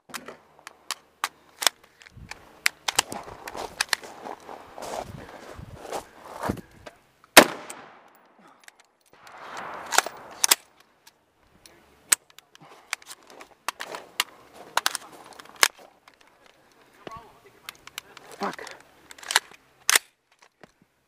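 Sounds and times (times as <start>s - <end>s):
rifle shots: 7.4s - 8.2s, 9.2s - 10.7s.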